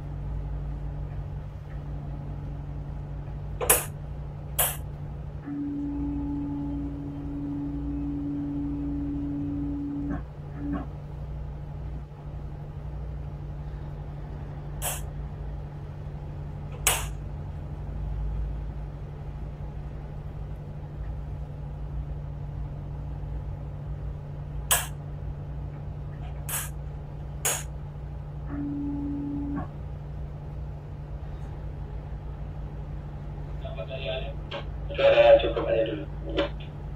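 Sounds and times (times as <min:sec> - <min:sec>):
boat engine humming: 0:00.0 - 0:36.9
short low tone: 0:05.4 - 0:10.9, 0:28.5 - 0:29.7
sharp clicks or knocks: 0:16.8 - 0:17.2, 0:24.7 - 0:24.9, 0:27.4 - 0:27.7.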